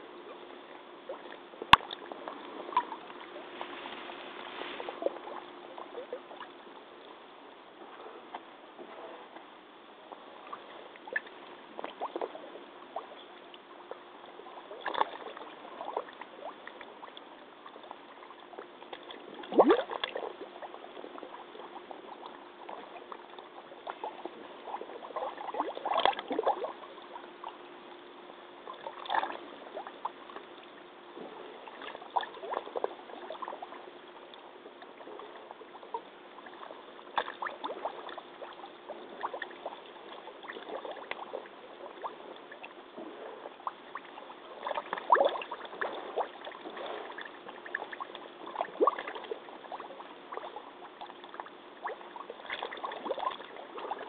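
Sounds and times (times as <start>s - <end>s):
muddy water sloshing around waders: 1.1s - 6.5s.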